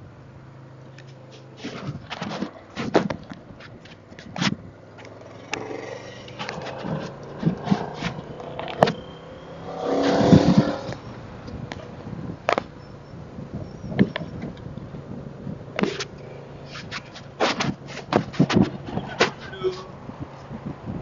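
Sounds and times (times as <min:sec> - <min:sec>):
motorcycle engine running: 0:00.0 - 0:19.1
wind on microphone: 0:06.4 - 0:21.0.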